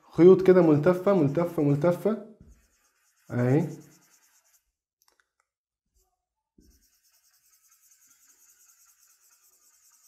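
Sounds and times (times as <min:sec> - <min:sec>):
marker scratching on whiteboard: 0:00.3 - 0:04.7, 0:06.6 - 0:10.0.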